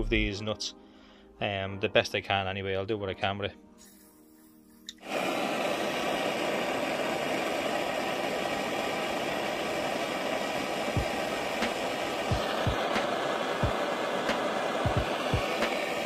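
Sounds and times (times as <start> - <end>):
blowtorch hissing: 3.8 - 16.0
blowtorch ignition click: 4.8 - 16.0.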